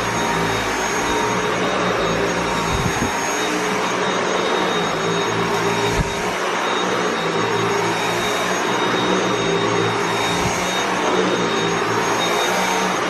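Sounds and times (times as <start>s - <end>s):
vacuum cleaner on carpet: 0.0s - 13.0s.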